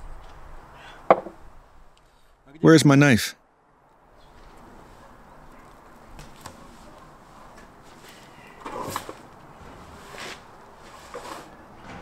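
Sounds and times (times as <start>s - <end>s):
soft knocks on wooden table: 1.1s - 1.4s
scraping shuffle: 6.4s - 12.0s.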